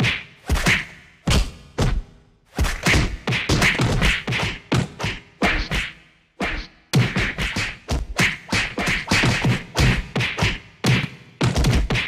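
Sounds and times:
punching hits with swishes: 0.0 - 12.0.

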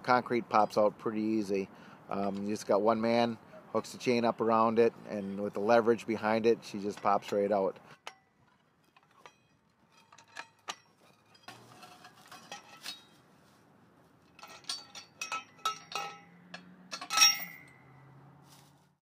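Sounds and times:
metal chain clinking and rattling: 8.1 - 13.2, 14.2 - 18.0.

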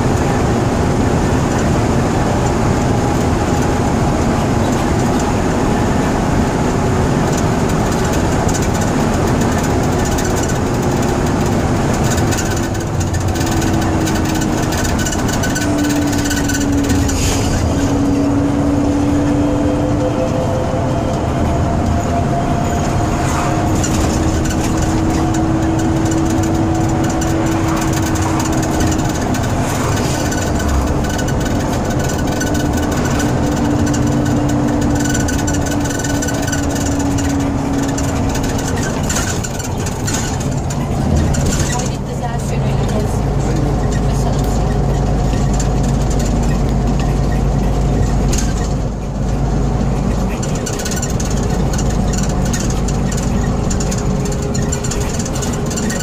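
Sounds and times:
bus diesel engine rumble: 0.0 - 56.0
wavering whining tone: 12.4 - 42.0.

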